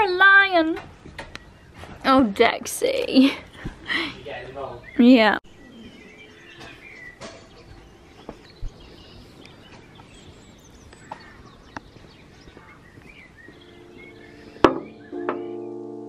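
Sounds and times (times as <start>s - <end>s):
birds chirping and singing: 0.0s - 2.6s, 3.9s - 16.0s
faint outdoor ambience: 0.0s - 16.0s
soft piano music: 13.5s - 16.0s
sharp knock: 14.6s - 15.5s.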